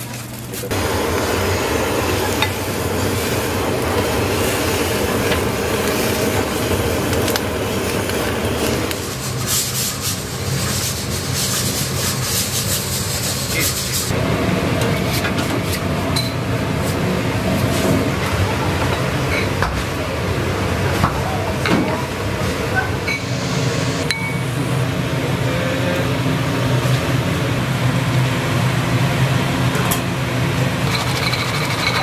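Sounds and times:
low kitchen hum: 0.0s - 32.0s
hiss: 0.7s - 14.1s.

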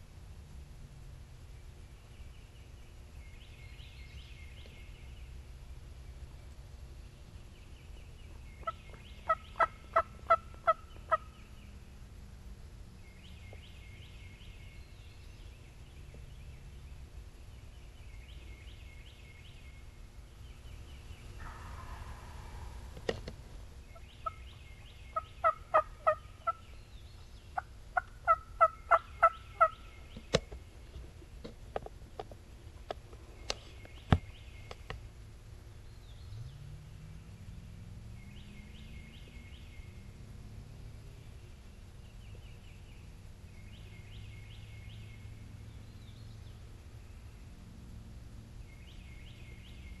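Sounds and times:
faint songbirds chirping: 0.0s - 50.0s
turkey yelping: 8.6s - 11.2s, 21.4s - 22.8s, 25.2s - 26.6s, 28.0s - 29.8s
turkey clucks: 8.6s - 11.3s, 21.4s - 22.8s, 23.9s - 24.5s, 25.1s - 26.6s, 27.6s - 29.8s.

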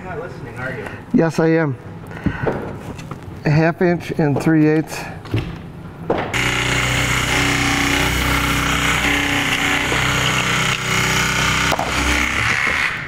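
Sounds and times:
reciprocating saw cutting: 6.4s - 13.0s.

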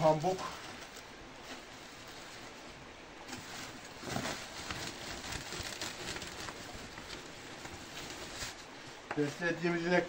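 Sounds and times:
plastic sack rustling: 3.2s - 9.4s.

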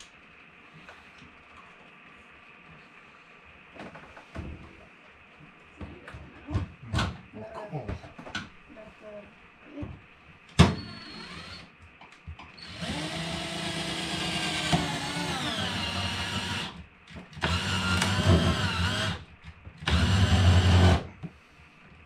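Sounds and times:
cordless drill drilling: 10.8s - 11.7s, 12.6s - 16.8s, 17.4s - 21.0s.

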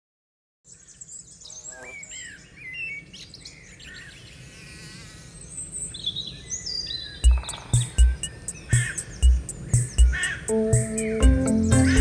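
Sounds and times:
small birds chirping and whistling: 0.7s - 12.0s.

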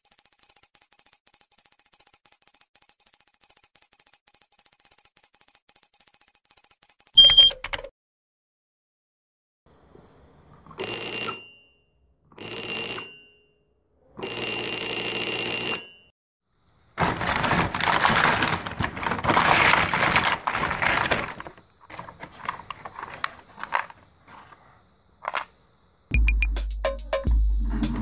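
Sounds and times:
plastic parts clicking: 17.0s - 24.0s, 25.2s - 25.5s
plastic toy pieces clattering: 17.0s - 24.0s
paper bag rustling: 17.0s - 24.6s.

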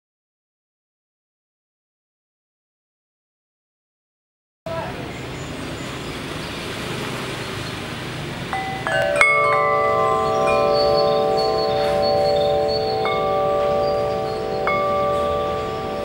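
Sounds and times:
background hiss: 5.0s - 16.0s
metal wind chime ringing: 8.5s - 16.0s.

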